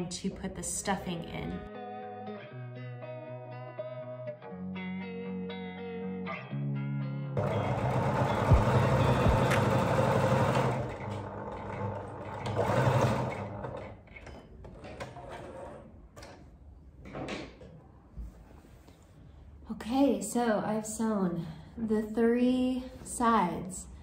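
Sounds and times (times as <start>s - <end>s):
sewing machine stitching: 7.4s - 15.9s.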